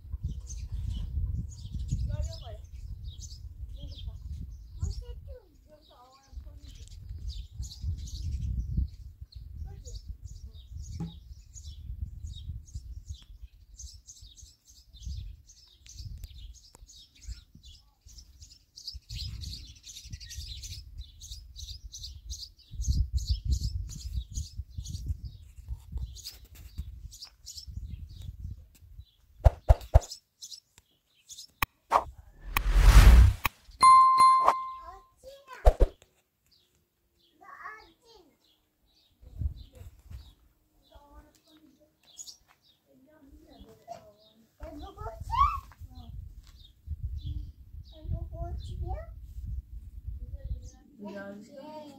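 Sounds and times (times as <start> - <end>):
small birds chirping: 0.0 - 32.1, 33.7 - 49.7, 50.3 - 51.9
low rumble: 32.3 - 33.5.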